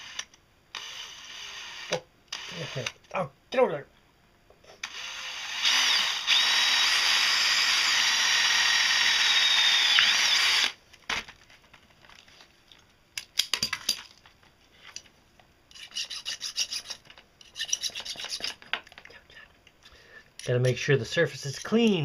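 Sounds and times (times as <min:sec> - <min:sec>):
cordless drill whining: 0:00.0 - 0:03.0, 0:04.8 - 0:10.8.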